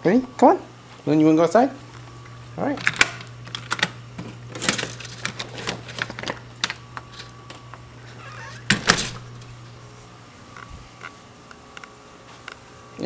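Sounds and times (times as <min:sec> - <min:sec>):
door blinds clicking and rattling: 0:02.8 - 0:07.3, 0:08.6 - 0:09.5.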